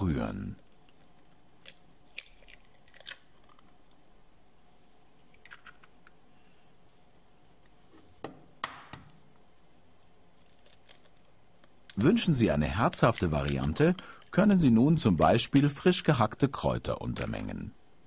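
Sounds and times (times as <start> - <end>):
eggshells cracking on glass bowl: 1.2 - 3.9.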